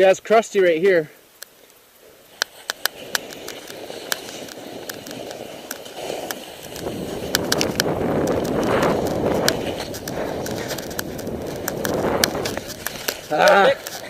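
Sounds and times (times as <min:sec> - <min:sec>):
sharp clicks and ticks: 0:01.3 - 0:14.0
snowboard scraping on crusty snow: 0:02.0 - 0:14.0.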